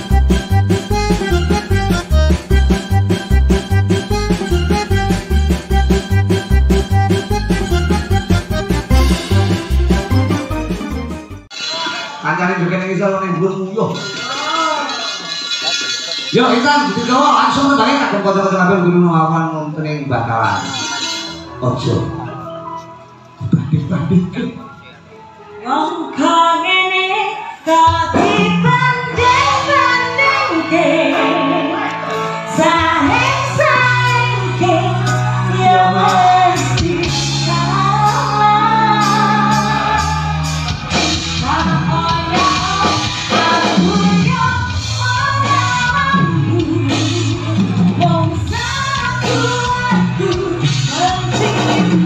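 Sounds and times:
low bass notes: 0:00.0 - 0:11.5
woman singing into microphone: 0:25.6 - 0:40.5, 0:41.4 - 0:52.0.

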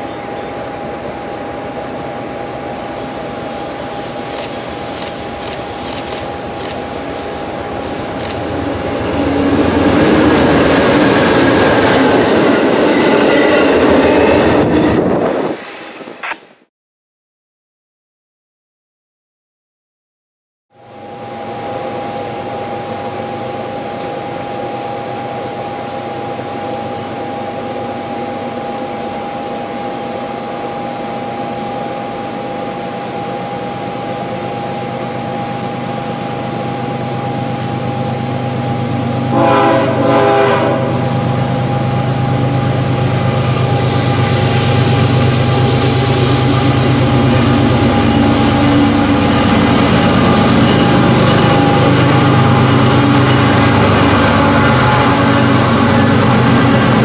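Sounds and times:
diesel locomotive rumble: 0:00.0 - 0:15.6, 0:33.1 - 0:57.0
train air horn blasts: 0:39.3 - 0:41.1, 0:53.4 - 0:56.0.

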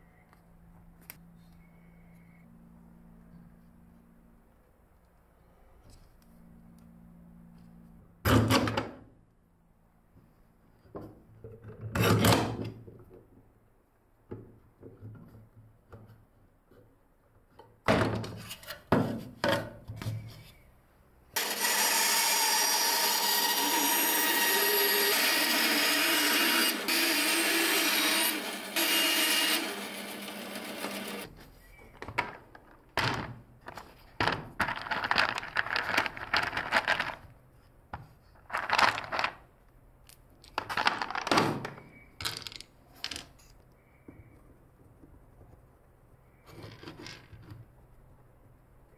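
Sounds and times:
band saw running: 0:21.4 - 0:31.3
wooden pieces clattering on bench: 0:31.9 - 0:37.3, 0:38.0 - 0:39.4, 0:40.4 - 0:43.5, 0:46.5 - 0:47.6
wooden parts knocking: 0:32.0 - 0:37.2, 0:38.0 - 0:39.4, 0:40.4 - 0:43.3.

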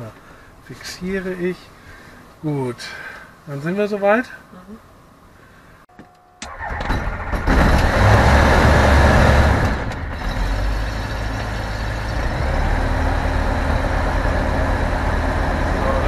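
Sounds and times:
engine starter cranking: 0:06.4 - 0:08.2.

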